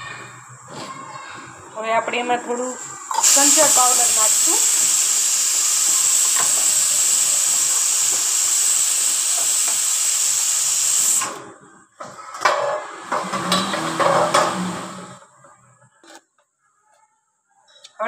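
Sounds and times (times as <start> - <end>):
loud steady hiss: 2.6 - 11.4.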